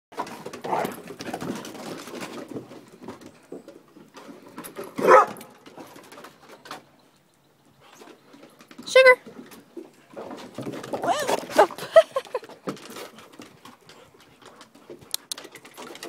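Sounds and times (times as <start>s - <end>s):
claws clicking on wooden decking: 0.2s - 16.0s
dog barking: 5.0s - 5.4s.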